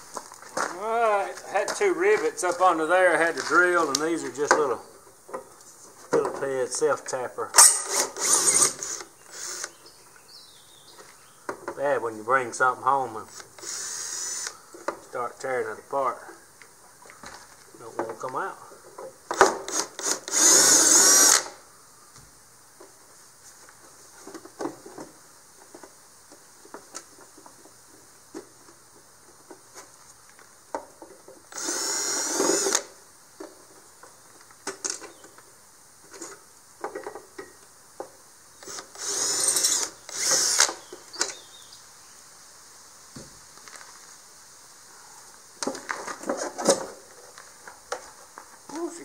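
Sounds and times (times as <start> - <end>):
cordless drill running: 7.8 - 9.7, 13.6 - 14.5, 19.7 - 21.6, 31.5 - 32.9, 38.6 - 40.8.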